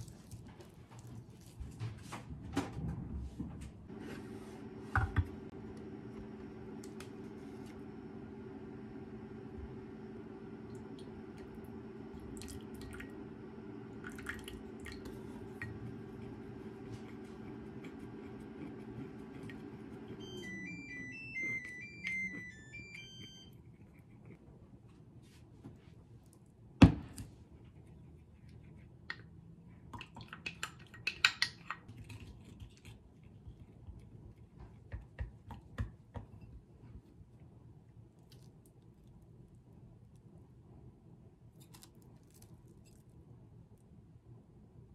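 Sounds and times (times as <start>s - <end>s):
low hum: 3.9s - 24.4s
water pouring into bowl: 12.2s - 13.2s, 13.9s - 15.8s.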